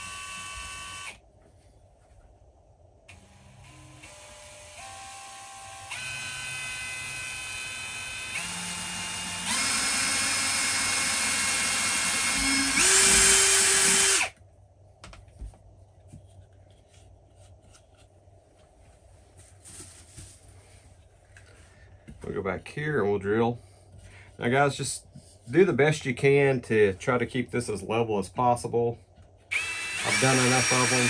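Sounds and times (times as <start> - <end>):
cordless drill motor whine: 0.0 - 1.2, 3.1 - 14.4, 29.5 - 31.0.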